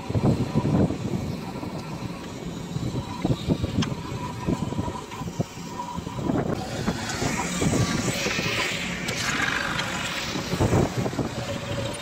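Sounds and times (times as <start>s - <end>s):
diesel engines running: 0.0s - 12.0s.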